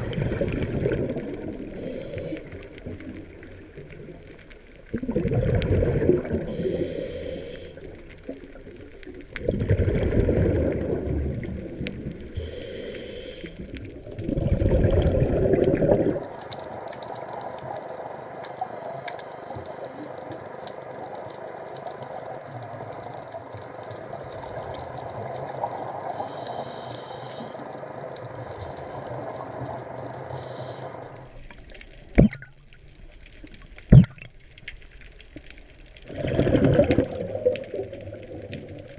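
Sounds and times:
underwater hiss: 0.0s - 3.5s, 5.0s - 8.6s, 9.5s - 16.2s, 25.6s - 27.9s, 28.8s - 31.6s
exhaled bubbles rushing underwater: 0.0s - 12.6s, 13.5s - 18.0s, 32.0s - 34.8s, 35.9s - 38.9s.

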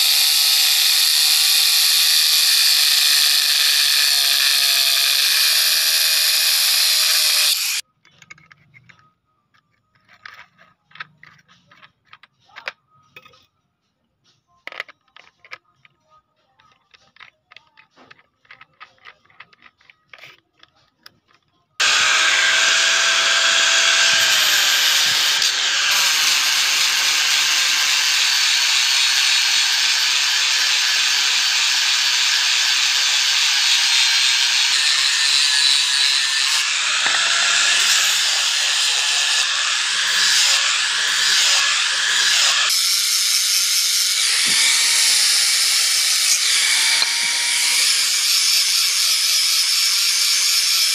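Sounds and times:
angle grinder whining: 0.0s - 7.8s, 21.8s - 50.9s.

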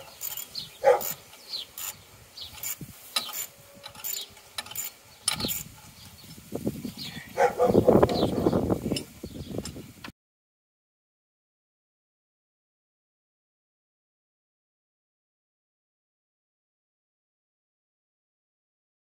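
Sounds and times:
ratchet spanner clicking: 0.0s - 6.4s
rubbing and scraping: 0.0s - 9.2s.

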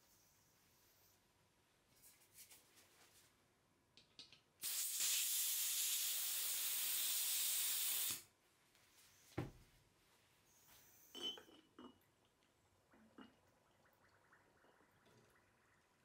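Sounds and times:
gas hissing from a valve: 4.6s - 8.3s.

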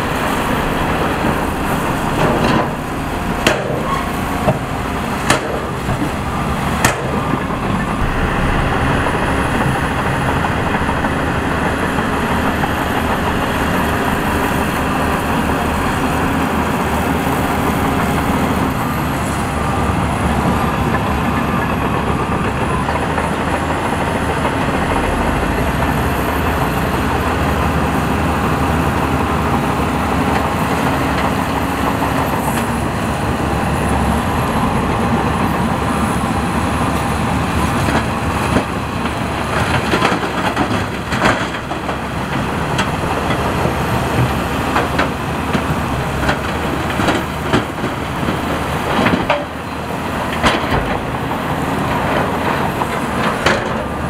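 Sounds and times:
heavy diesel machinery running: 0.0s - 54.0s
high whine: 6.0s - 15.2s.

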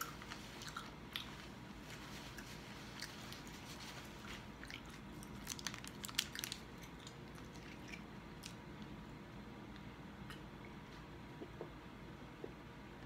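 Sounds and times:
chewing and mouth sounds: 0.0s - 1.4s, 4.6s - 8.6s.

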